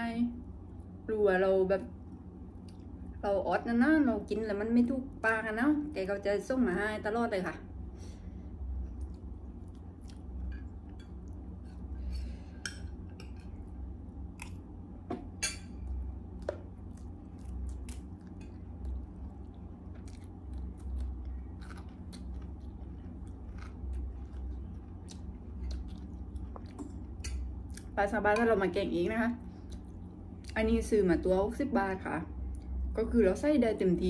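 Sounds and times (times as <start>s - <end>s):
low steady hum: 0.0s - 34.0s
chewing crunches: 8.9s - 11.5s, 16.8s - 28.0s.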